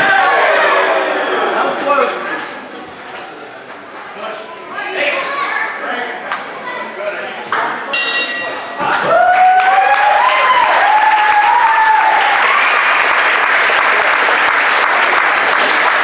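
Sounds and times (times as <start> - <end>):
crowd applauding and cheering: 8.8 - 16.0
spectator whooping shout: 9.0 - 12.8.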